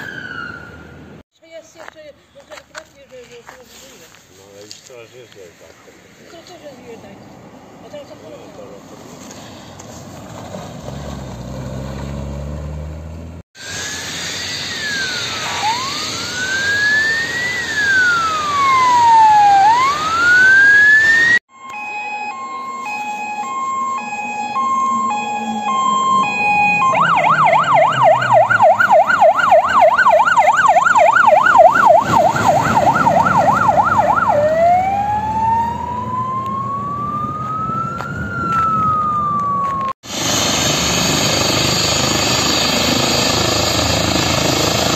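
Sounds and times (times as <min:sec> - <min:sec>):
emergency vehicle sirens: 0:00.0 - 0:01.2, 0:13.6 - 0:44.9
vehicle passing: 0:05.4 - 0:13.4, 0:23.8 - 0:39.8.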